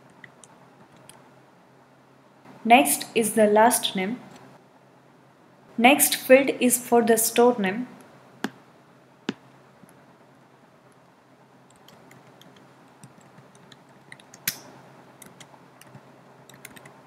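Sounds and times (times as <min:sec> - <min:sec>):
computer keyboard typing: 0:00.1 - 0:01.2, 0:11.7 - 0:14.6, 0:15.2 - 0:17.0.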